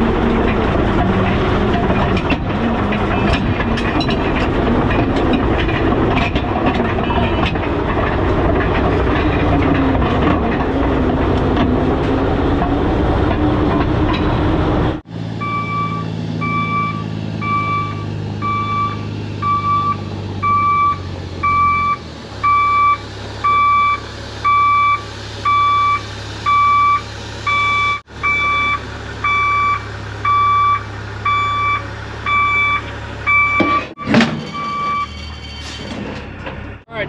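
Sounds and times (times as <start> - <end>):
diesel engine running: 0.0 - 37.0
truck backup alarm beeping: 15.2 - 35.8.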